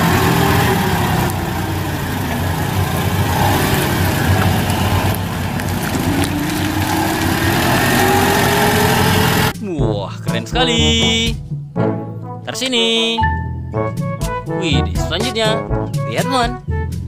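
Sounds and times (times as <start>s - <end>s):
forklift engine running: 0.0s - 9.6s.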